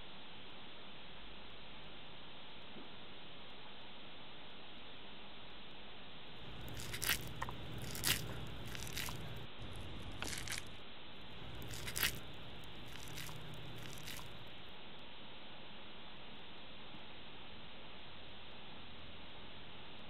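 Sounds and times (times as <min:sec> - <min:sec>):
sticky rice crackling clicks: 0:06.4 - 0:14.6.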